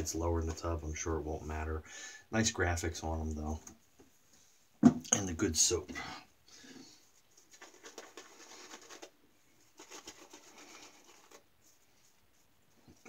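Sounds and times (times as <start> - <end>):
brush scratching on beard: 7.2 - 13.0.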